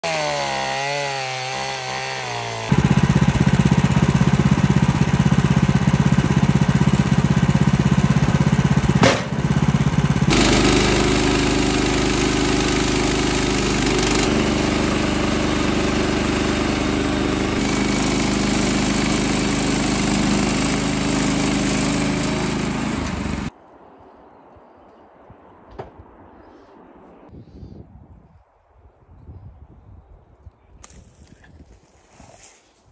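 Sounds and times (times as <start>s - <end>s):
band blade sawing log: 0.0s - 23.5s
chainsaw cutting into log: 0.0s - 23.5s
sawmill engine running: 0.0s - 23.5s.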